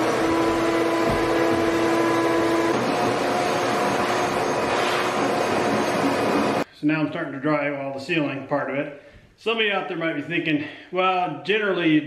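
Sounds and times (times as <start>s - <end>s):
shop vacuum running: 0.0s - 6.7s.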